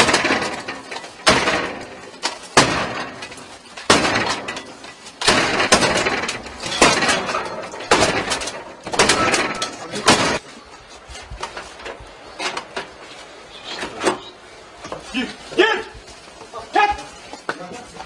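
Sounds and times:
heavy blows on metal door: 0:00.0 - 0:10.4.

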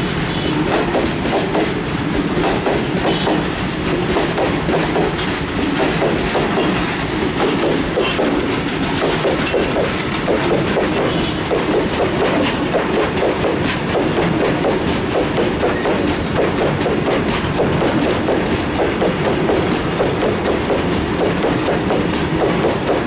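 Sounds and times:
freight train rumbling past: 0:00.0 - 0:23.0
wheels clickety-clack on rails: 0:00.0 - 0:23.0
faint high wheel squeaks: 0:19.0 - 0:19.9.

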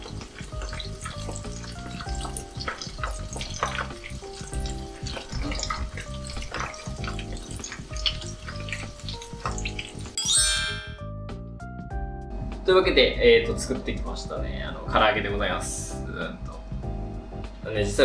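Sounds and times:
chicken deep-frying in oil: 0:00.0 - 0:10.2
background music: 0:00.0 - 0:18.0.

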